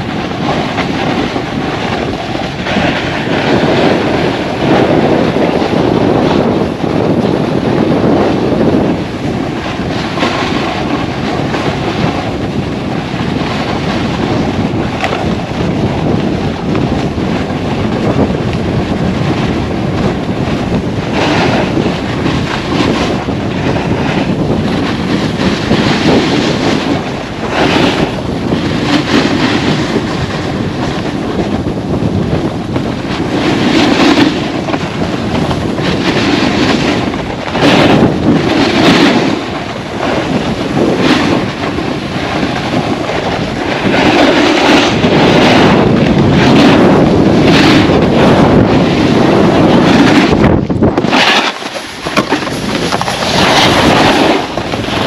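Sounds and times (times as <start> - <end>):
wind on microphone: 0.0 - 55.0
edges scraping on snow: 0.1 - 8.8, 33.1 - 55.0.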